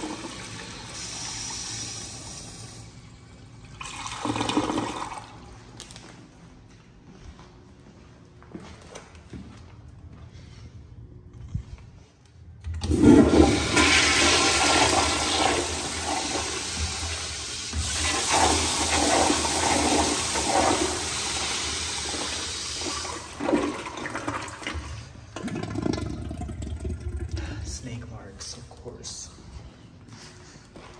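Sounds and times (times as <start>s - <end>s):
toilet flushing: 0.0s - 5.6s, 12.7s - 27.9s.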